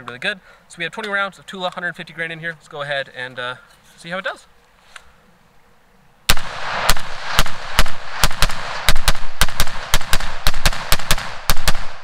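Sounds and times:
rapid rifle fire: 6.3 - 12.0.

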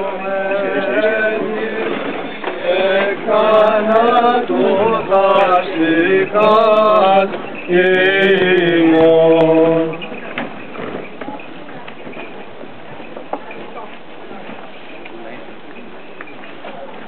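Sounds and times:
men chanting a hymn: 0.0 - 10.0.

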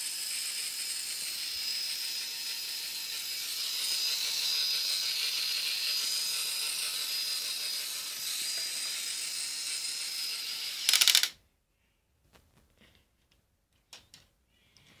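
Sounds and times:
toy motor whining: 0.0 - 11.4
rapid plastic gear clicking: 0.2 - 11.4.

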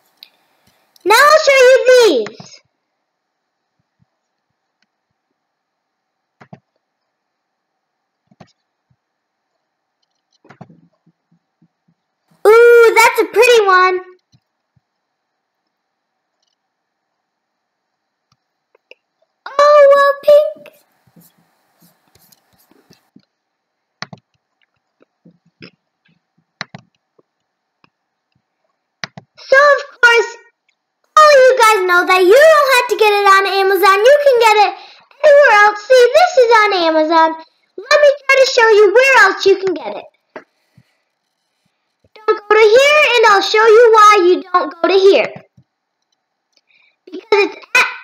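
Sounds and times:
computer mouse clicks: 6.4 - 6.8, 8.1 - 8.7, 9.5 - 12.0, 14.1 - 16.6, 24.0 - 28.4, 29.0 - 29.4, 40.1 - 42.2.

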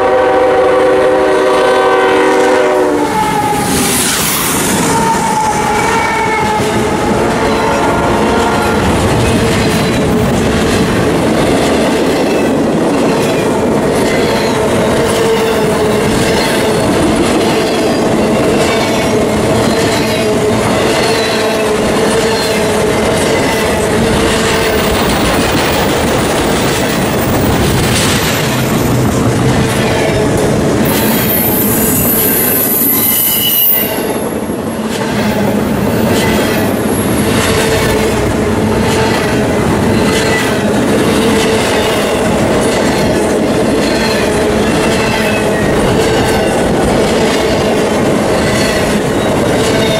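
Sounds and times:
train wheels clacking over rail joints: 0.6 - 32.3, 34.2 - 49.9
train wheels squealing: 3.0 - 7.8, 30.9 - 34.4, 42.7 - 46.6.

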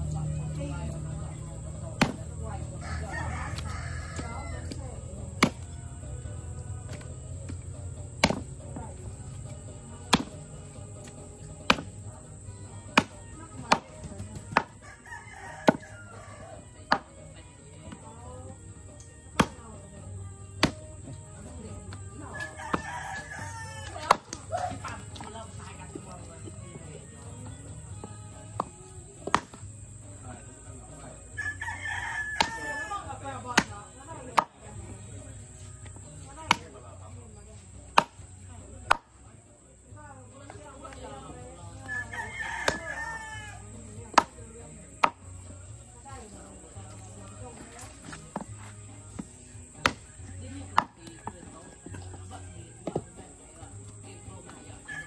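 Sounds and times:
machete chopping fish on wood: 2.0 - 2.2, 5.4 - 5.7, 8.2 - 8.5, 10.1 - 10.4, 11.6 - 12.0, 12.9 - 14.8, 19.4 - 19.6, 20.6 - 20.8, 23.9 - 24.6, 28.6 - 29.6, 32.4 - 32.6, 37.9 - 38.2, 38.9 - 39.1, 42.6 - 42.9, 45.0 - 45.2, 49.8 - 50.2
rooster crowing: 2.7 - 5.0, 14.8 - 16.7, 22.3 - 24.7, 31.4 - 33.2, 41.8 - 43.7.

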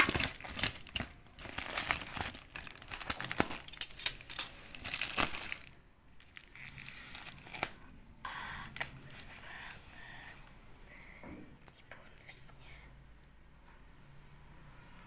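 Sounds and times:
bubble wrap crinkling and crackling: 0.0 - 7.9.

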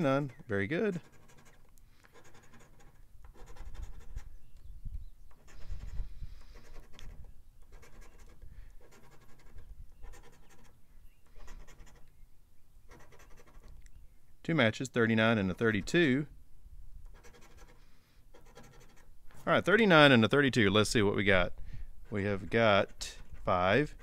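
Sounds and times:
scratching lottery ticket coating: 0.0 - 4.4, 5.3 - 12.1, 17.1 - 19.1.

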